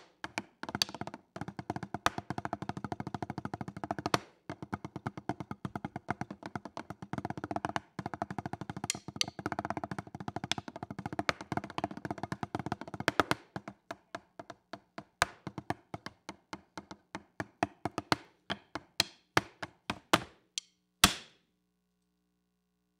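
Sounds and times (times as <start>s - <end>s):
drumline-style drum beat: 0.8s - 13.7s.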